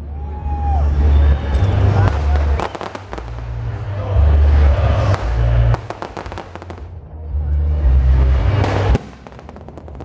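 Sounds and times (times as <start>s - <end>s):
low rumble: 0.7s - 10.0s
firework booms and bangs: 1.7s - 6.9s, 8.5s - 10.0s
firework crackling: 1.7s - 7.0s, 8.3s - 10.0s.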